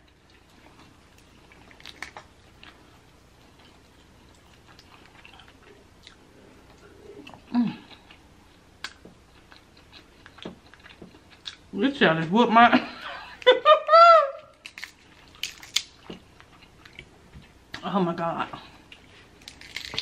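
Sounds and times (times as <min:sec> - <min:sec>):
chewing: 0:00.0 - 0:11.6
crab shell cracking: 0:14.5 - 0:16.0, 0:19.4 - 0:20.0.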